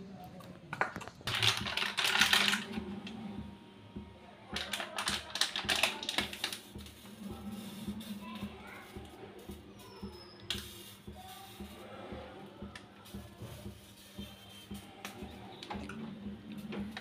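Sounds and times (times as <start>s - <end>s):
plastic packet crinkling: 0.8s - 2.7s, 4.6s - 6.8s.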